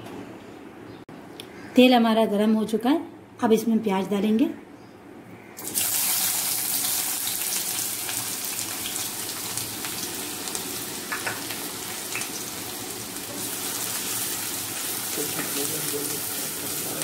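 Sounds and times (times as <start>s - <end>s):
onions sizzling in hot oil: 5.6s - 17.0s.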